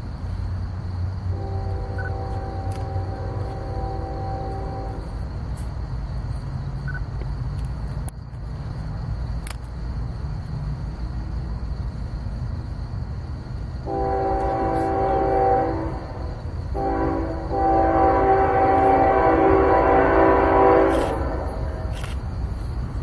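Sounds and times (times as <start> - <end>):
low rumble: 0.8 - 5.5
diesel locomotive air horn: 1.2 - 5.2, 13.8 - 22.0.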